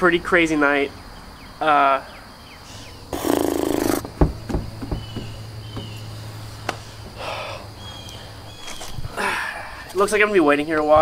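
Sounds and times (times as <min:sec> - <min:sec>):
knocks on door: 0:04.0 - 0:06.0
thud on door: 0:04.0 - 0:06.0.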